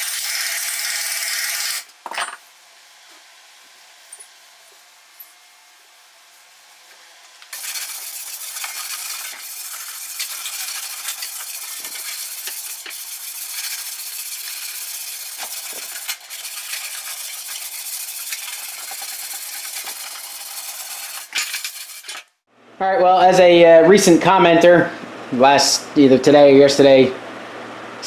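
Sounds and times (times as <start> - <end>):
sanding block rasping on steel: 7.6 - 22.2.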